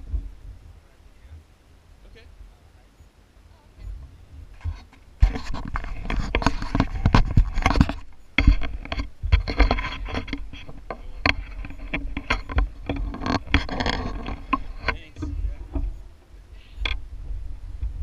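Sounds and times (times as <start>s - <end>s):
bicycle rumbling and knocking: 0.0s - 0.6s, 3.9s - 18.0s
bicycle rattles and clicks: 4.6s - 16.0s.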